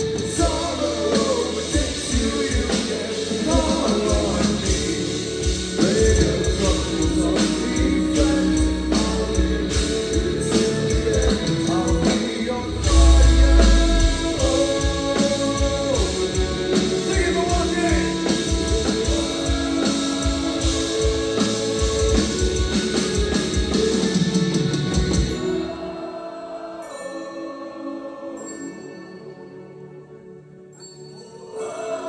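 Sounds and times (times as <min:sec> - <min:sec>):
heavy metal band playing: 0:00.0 - 0:26.2
heavy low boom: 0:12.7 - 0:14.5.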